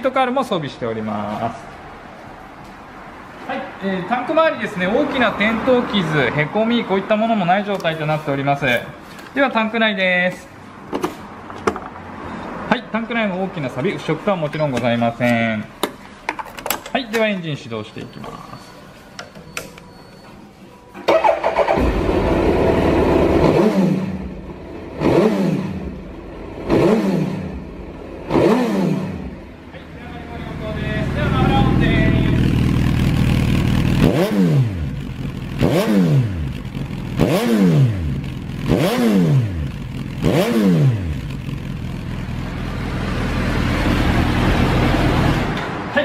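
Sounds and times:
motorcycle engine starting and revving: 21.0 - 45.8.

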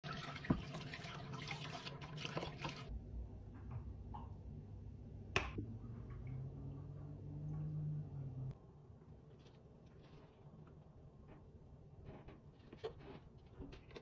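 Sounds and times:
water splashing and sloshing: 0.0 - 2.9
finger snap: 5.3 - 5.6.

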